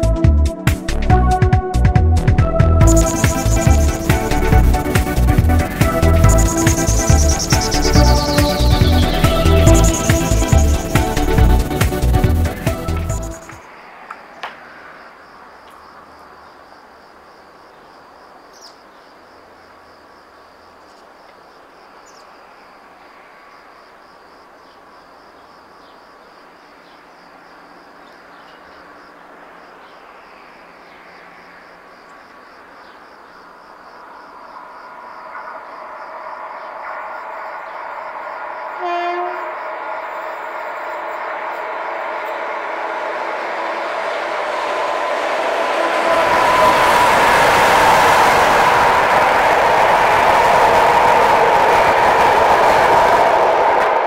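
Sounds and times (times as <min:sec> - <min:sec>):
train rumbling on rails: 0:00.0 - 0:15.5, 0:33.4 - 0:54.0
train horn blast: 0:38.2 - 0:48.0.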